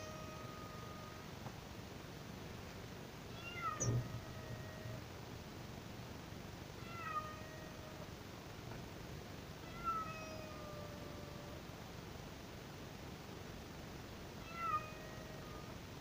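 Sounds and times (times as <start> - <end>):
cat meowing: 0.0 - 1.2, 3.3 - 5.0, 6.8 - 8.1, 9.6 - 11.6, 14.4 - 15.8.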